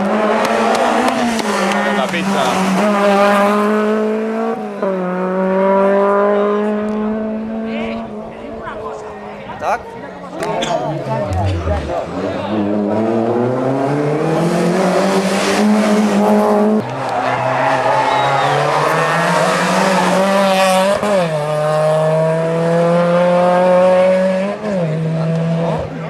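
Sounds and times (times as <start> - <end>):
rally car engines revving: 0.0 - 26.0.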